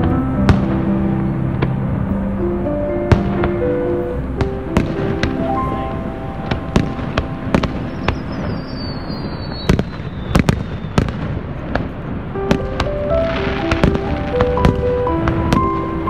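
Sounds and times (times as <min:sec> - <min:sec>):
falling firework whistle: 0:06.4 - 0:11.4.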